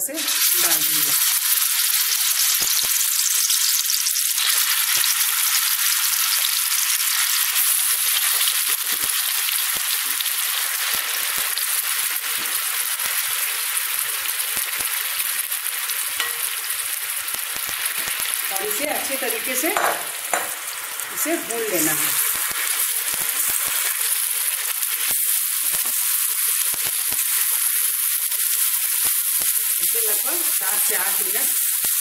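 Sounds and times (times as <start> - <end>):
food sizzling in hot fat: 0.0 - 32.0.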